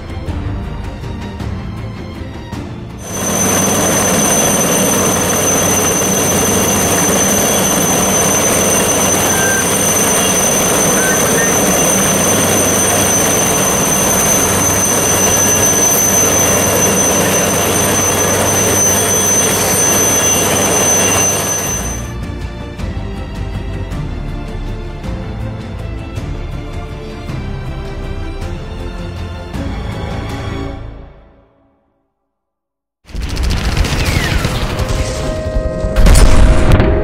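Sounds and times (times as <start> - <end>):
helicopter rotors rushing: 3.0 - 22.1
helicopter turbine whine: 3.0 - 22.4.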